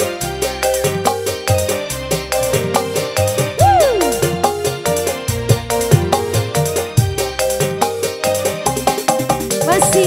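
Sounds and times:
electronic keyboard melody: 0.0s - 10.0s
fast drum beat: 3.6s - 6.3s.

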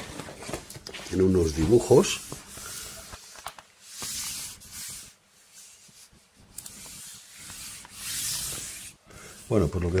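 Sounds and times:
hand rustling over fabric: 0.0s - 10.0s.

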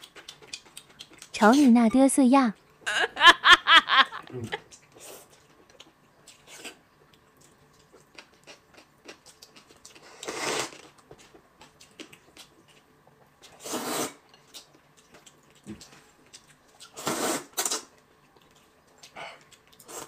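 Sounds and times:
person slurping noodles: 10.1s - 10.8s, 13.6s - 14.2s, 17.0s - 17.8s.

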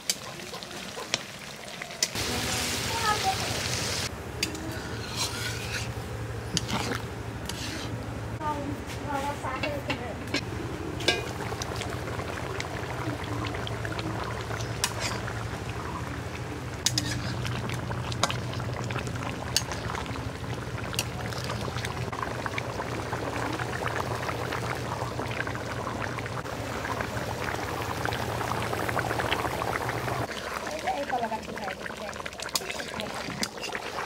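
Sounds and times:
curry bubbling in a metal pan: 0.0s - 3.5s, 4.4s - 7.9s, 10.4s - 34.0s.

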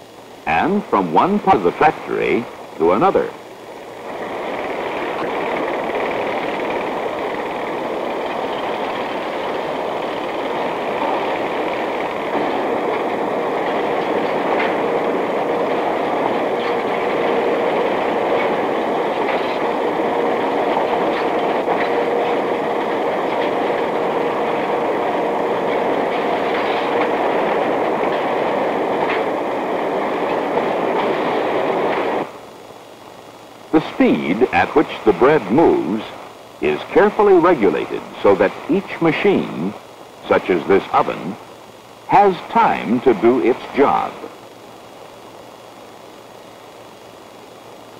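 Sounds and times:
faint machine hum: 0.0s - 47.9s
machinery clatter: 4.0s - 32.3s.

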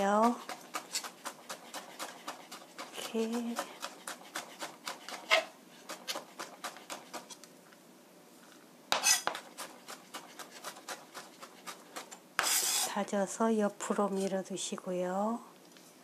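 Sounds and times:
knife chopping on cutting board: 0.2s - 7.4s, 8.9s - 12.9s
knife scraping board: 0.2s - 7.4s, 8.9s - 13.0s.

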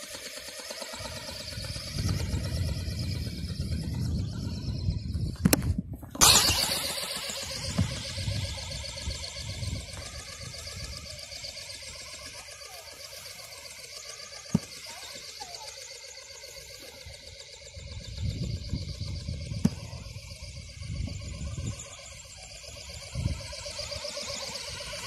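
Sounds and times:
faint high motor whine: 0.0s - 25.0s
wind gusting on microphone: 1.4s - 6.8s, 17.8s - 24.0s.

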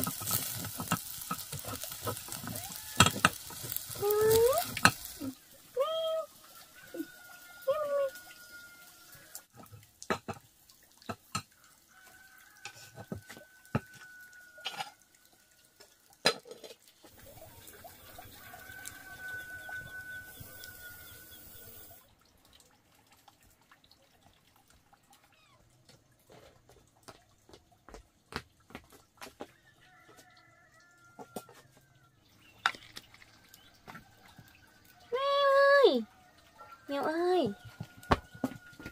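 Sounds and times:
wood fire crackling: 0.0s - 11.4s, 16.8s - 22.0s.

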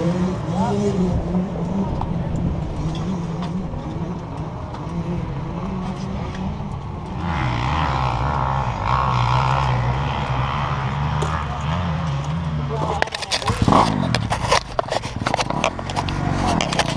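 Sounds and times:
atv engine running: 0.0s - 16.9s.

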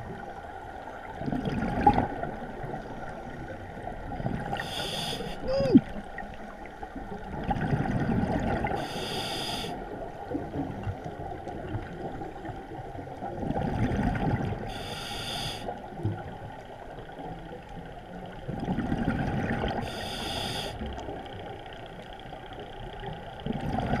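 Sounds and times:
exhaled bubbles gurgling underwater: 0.0s - 24.0s
regulator hiss on inhale: 4.6s - 5.5s, 8.8s - 9.8s, 14.7s - 15.8s, 19.8s - 20.9s.

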